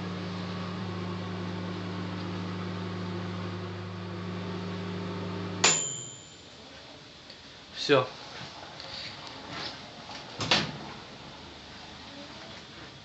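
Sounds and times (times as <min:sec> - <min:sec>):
microwave oven humming: 0:00.0 - 0:07.2
timer bell ding: 0:05.6 - 0:06.5.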